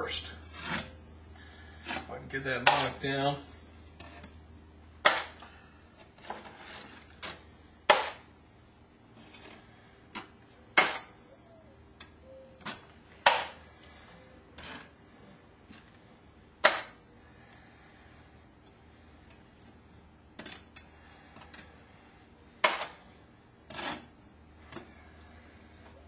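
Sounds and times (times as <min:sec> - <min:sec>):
knife scraping wet wall texture: 0:00.5 - 0:01.0, 0:22.6 - 0:23.0, 0:23.7 - 0:24.1.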